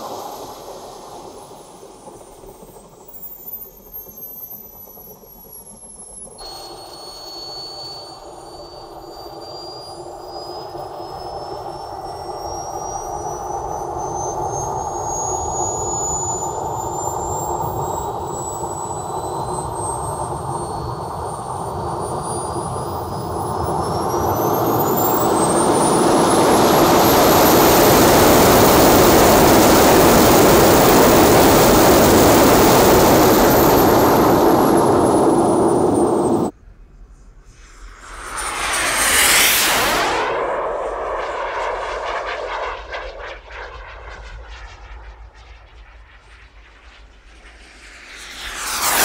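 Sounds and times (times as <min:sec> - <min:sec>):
small jet turbine whine: 0:00.0 - 0:49.0
rushing exhaust noise: 0:08.0 - 0:36.5, 0:37.3 - 0:45.8.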